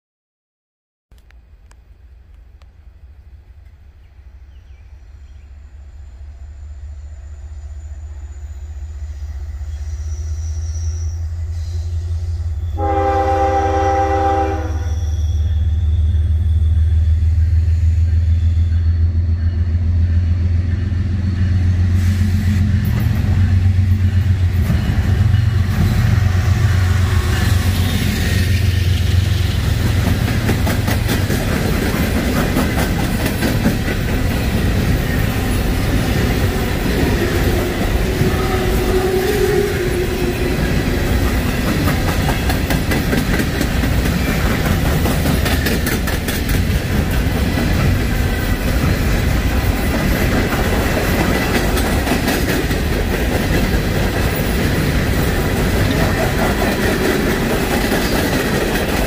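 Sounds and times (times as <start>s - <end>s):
locomotive rumble: 1.6s - 59.0s
locomotive horn blast: 12.7s - 15.0s, 37.0s - 41.2s
train wheels clicking on rails: 19.4s - 59.0s.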